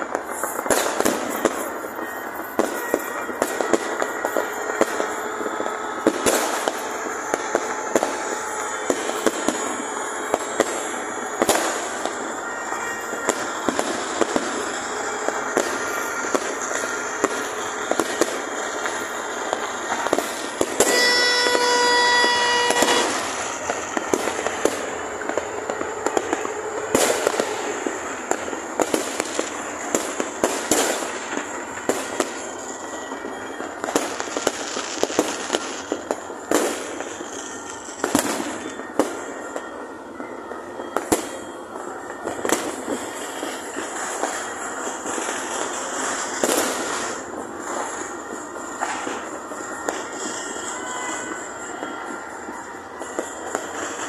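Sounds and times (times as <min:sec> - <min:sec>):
fireworks crackling and banging: 0:00.0 - 0:54.0
steady pitched horn tone: 0:00.3 - 0:35.6.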